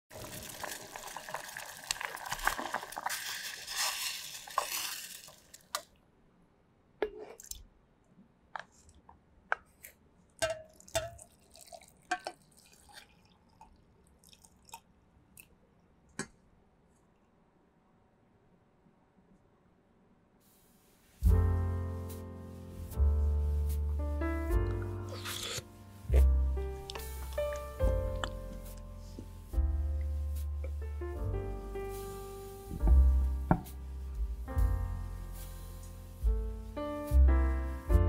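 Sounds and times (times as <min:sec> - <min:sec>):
syrup bubbling in a saucepan: 0:00.1 - 0:03.9, 0:10.7 - 0:15.0
liquid splashing into a glass jar: 0:10.4 - 0:14.9.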